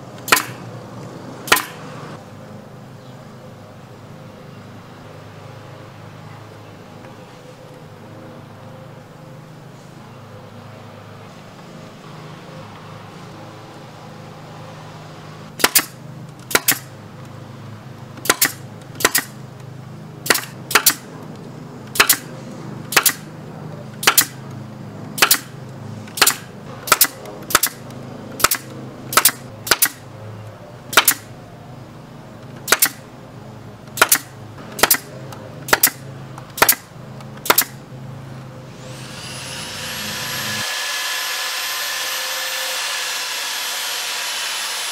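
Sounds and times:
belt sander whine: 38.7 - 44.9.

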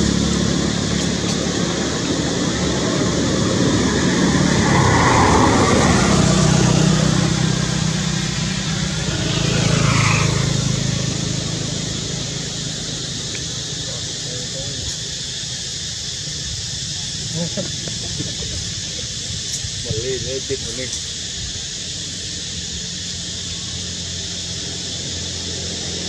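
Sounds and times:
vehicle passing by: 0.0 - 14.9
vehicle engine running: 0.0 - 26.0.

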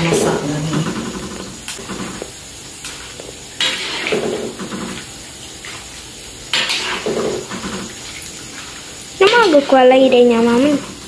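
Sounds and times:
oil sizzling: 0.0 - 11.0
metal spoon scraping a wok: 3.6 - 5.0, 6.5 - 7.9.

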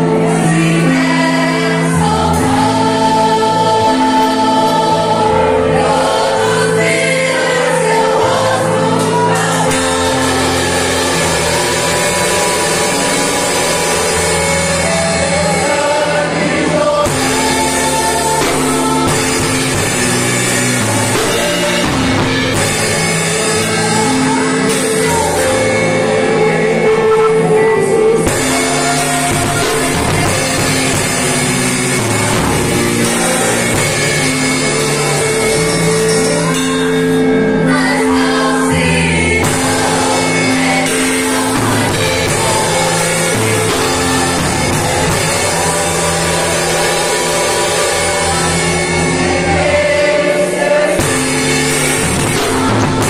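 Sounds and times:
drum kit with cymbals: 0.0 - 53.0
keyboard playing: 0.0 - 53.0
person singing: 0.0 - 53.0.

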